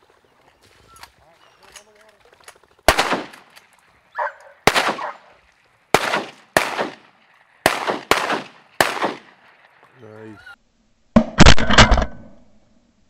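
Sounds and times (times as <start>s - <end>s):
shotgun shots echoing: 2.9s - 3.6s, 4.2s - 9.7s.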